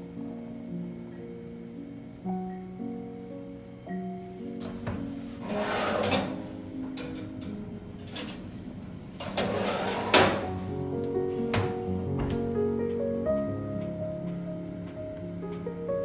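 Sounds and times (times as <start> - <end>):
soft plucked-string music: 3.8 - 16.0
metal oven rack scraping: 5.3 - 10.7.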